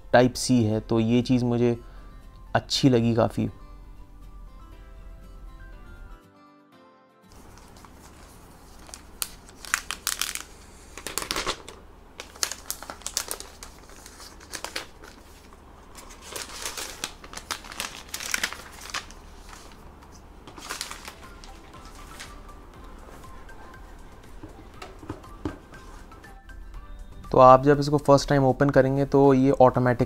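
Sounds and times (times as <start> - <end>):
plastic wrap crinkling: 7.3 - 22.4.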